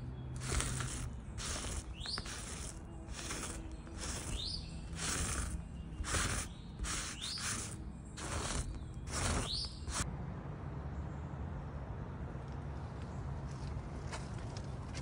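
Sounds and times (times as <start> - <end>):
gloved hand rustling on canvas: 0.4 - 10.0
short rising squeak: 0.4 - 10.0.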